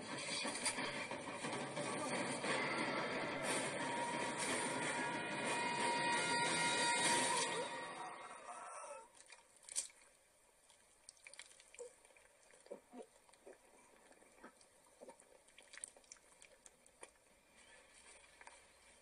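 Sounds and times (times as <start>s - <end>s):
faint drips and ticks: 9.1s - 19.0s.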